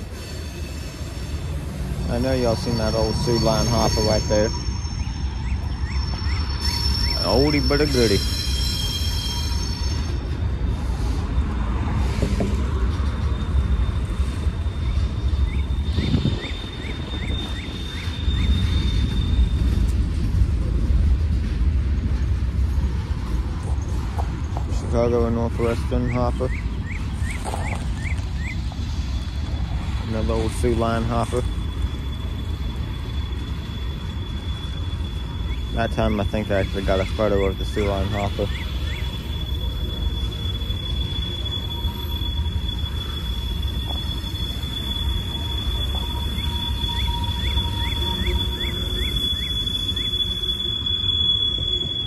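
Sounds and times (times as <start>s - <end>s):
train wheels rumbling on rails: 0.0s - 52.0s
thin high tone: 1.3s - 10.3s.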